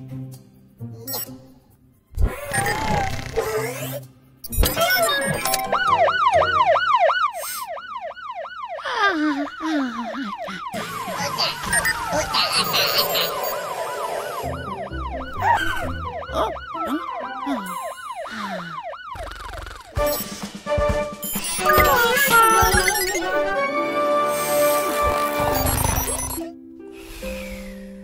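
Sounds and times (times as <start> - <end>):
cartoon fire engine siren yelping: 4.6 - 20.0
light music: 20.0 - 28.0.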